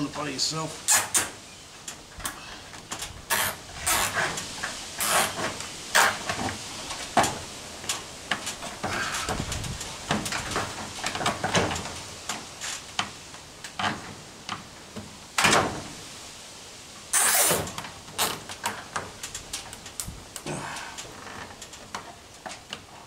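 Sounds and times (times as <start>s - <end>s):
cable ties scraping and clicking: 0.9s - 14.0s, 17.1s - 23.0s.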